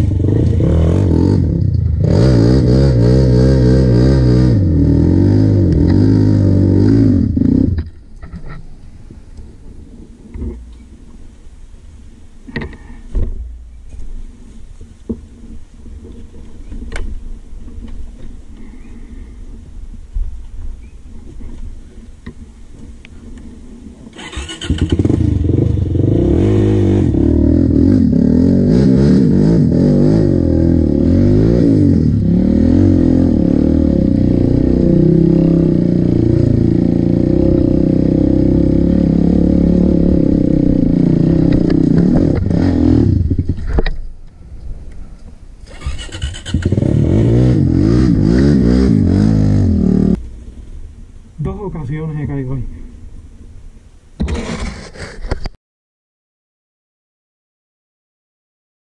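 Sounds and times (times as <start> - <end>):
quad engine revving: 0.0 - 7.8, 24.2 - 43.6, 45.6 - 50.2.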